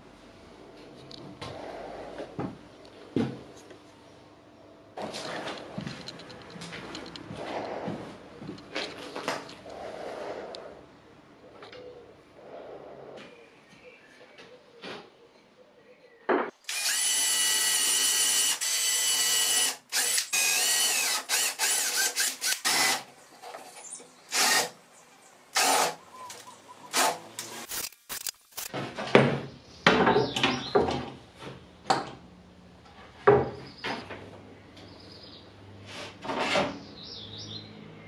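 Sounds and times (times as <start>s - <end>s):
cordless drill driving screws: 16.6s - 23.1s, 24.3s - 24.7s, 25.6s - 28.3s.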